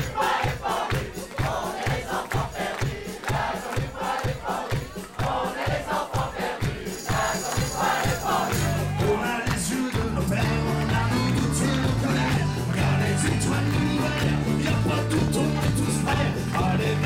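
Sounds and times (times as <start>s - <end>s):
crowd singing along: 0.0s - 17.0s
steady drum beat: 0.0s - 17.0s
live band playing: 6.7s - 17.0s
held bass notes: 10.0s - 17.0s.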